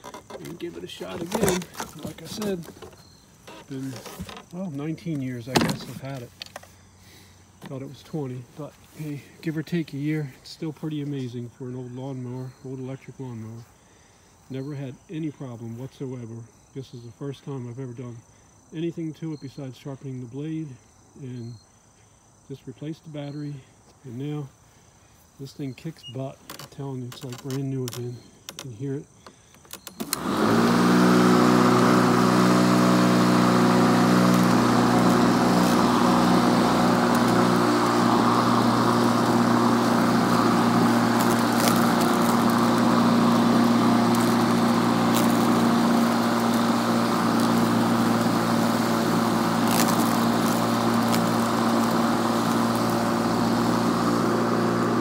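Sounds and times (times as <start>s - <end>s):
electric lawn mower humming: 0.0s - 10.4s, 26.4s - 55.0s.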